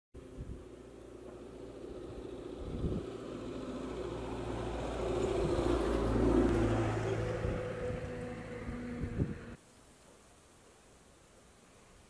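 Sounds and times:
vehicle passing: 0.2 - 9.6.

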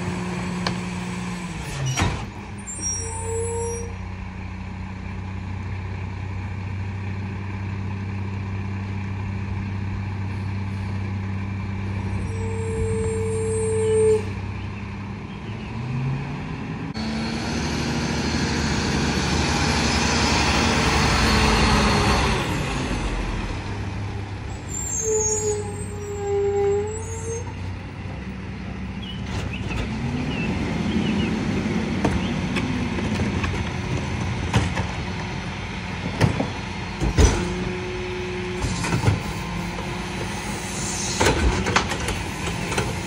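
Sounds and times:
diesel engine idling and revving: 0.0 - 43.0
brief squeal: 1.7 - 4.0, 12.2 - 14.4, 24.7 - 27.6.

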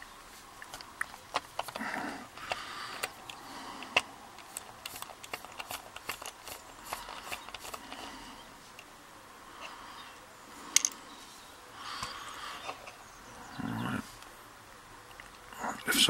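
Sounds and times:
screwdriver clicks and scrapes: 0.7 - 8.1.

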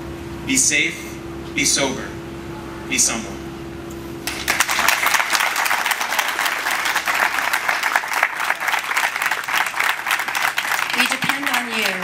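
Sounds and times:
crowd applauding: 4.2 - 12.0.

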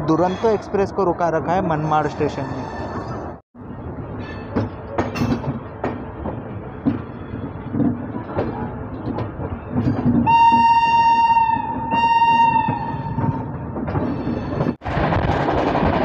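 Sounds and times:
train coaches clicking over rail joints: 4.2 - 16.0
locomotive horn: 10.3 - 13.2.

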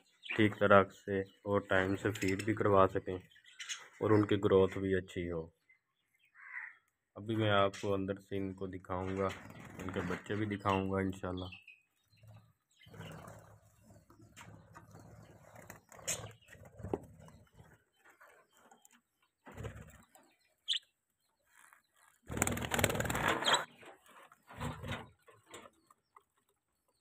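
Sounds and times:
budgerigars chirping: 1.8 - 4.2, 20.6 - 21.0
rustling and knocking at cage: 23.0 - 25.8.

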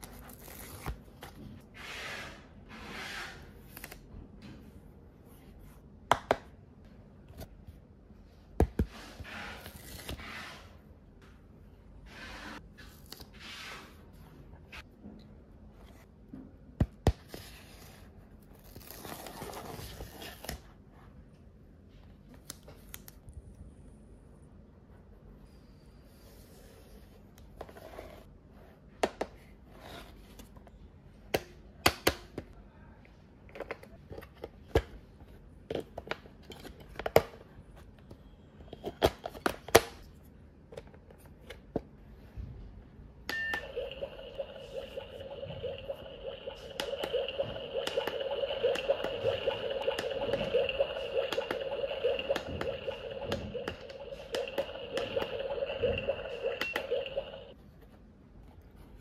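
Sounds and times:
electronic toy cooking sound: 43.4 - 57.6.

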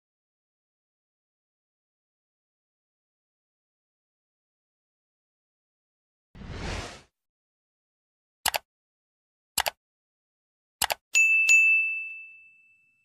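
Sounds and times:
short whoosh: 6.4 - 7.1
double mouse clicks: 8.4 - 8.7, 9.6 - 9.8, 10.8 - 11.0.

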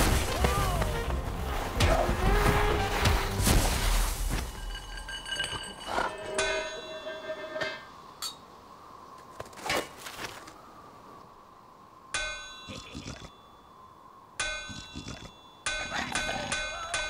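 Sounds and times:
metal pot clanging: 4.5 - 8.4.

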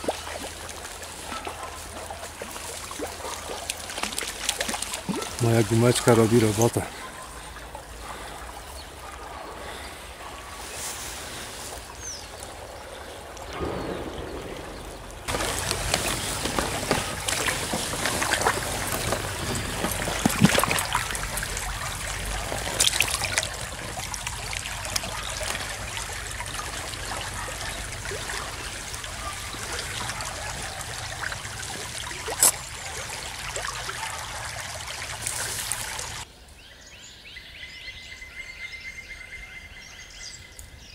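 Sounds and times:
fish splashing in water: 0.0 - 9.8, 13.9 - 36.3
stream trickling: 0.0 - 36.3.

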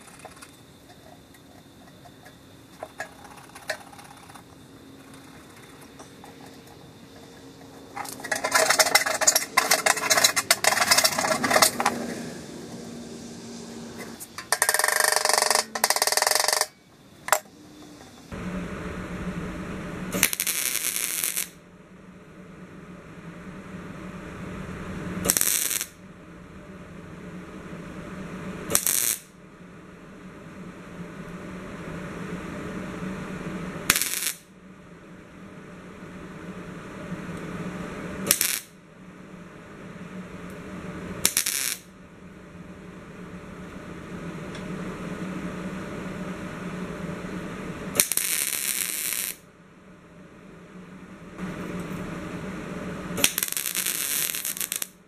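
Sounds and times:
crackling tack welds: 0.0 - 18.4, 20.0 - 21.6, 25.1 - 26.0, 28.6 - 29.4, 33.8 - 34.6, 38.2 - 38.8, 41.2 - 42.0, 47.9 - 49.5, 53.1 - 55.0
welder humming: 0.0 - 21.6, 22.8 - 26.0, 27.2 - 29.3, 30.9 - 34.5, 35.8 - 38.8, 39.4 - 41.9, 42.8 - 49.4, 51.2 - 55.0.

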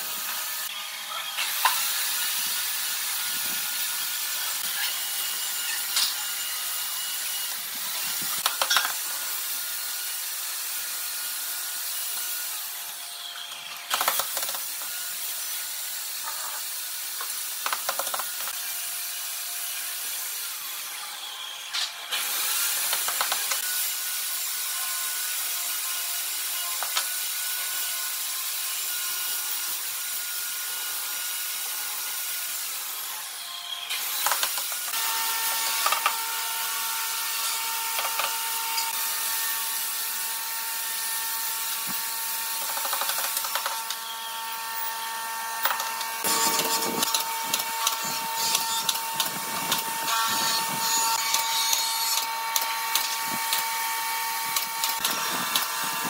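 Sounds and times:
pneumatic nailer clicks: 7.9 - 9.3, 13.5 - 15.0, 17.2 - 18.6, 21.7 - 23.8, 26.6 - 27.2, 33.9 - 36.2, 37.4 - 39.0, 41.7 - 44.0, 45.6 - 53.8, 54.4 - 56.0.

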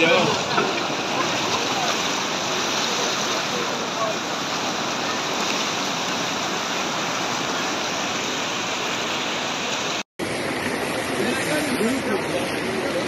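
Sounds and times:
floodwater rushing: 0.0 - 13.0.

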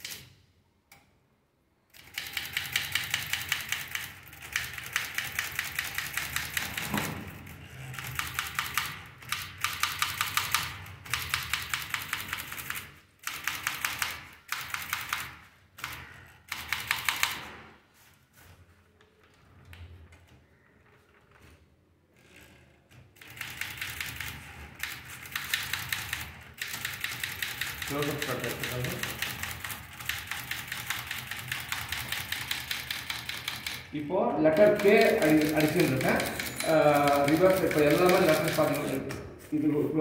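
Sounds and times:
manual typewriter typing: 1.9 - 17.6, 23.1 - 39.2.

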